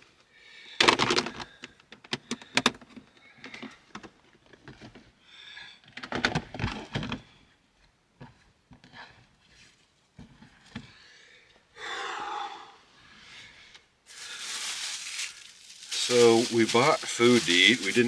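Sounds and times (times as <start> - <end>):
hard plastic clattering and knocking: 0.8 - 5.1, 5.9 - 7.3.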